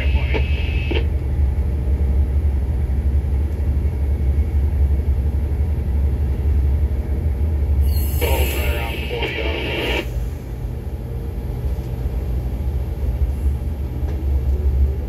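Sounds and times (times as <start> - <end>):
radio voice: 0.0 - 1.1, 8.2 - 10.1
tugboat diesel engine rumbling: 0.0 - 15.0.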